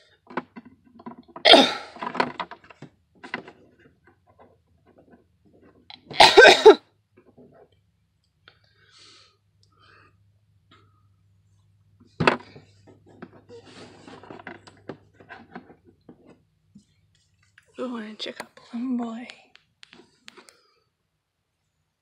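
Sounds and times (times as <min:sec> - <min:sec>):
faint clicks and rustles: 0:00.0 - 0:06.1, 0:07.1 - 0:20.9
person coughing: 0:01.5 - 0:02.0, 0:06.2 - 0:06.8.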